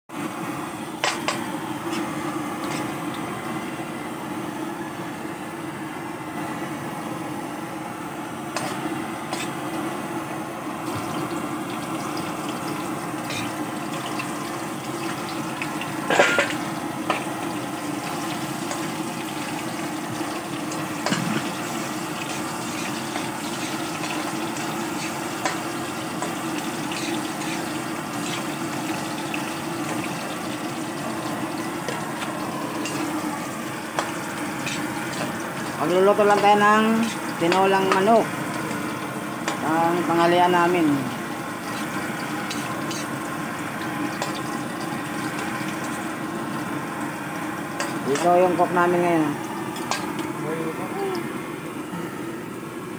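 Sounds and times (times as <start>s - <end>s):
food sizzling in oil: 0.2s - 3.8s, 8.4s - 51.9s
metal spatula scraping wok: 34.6s - 35.3s.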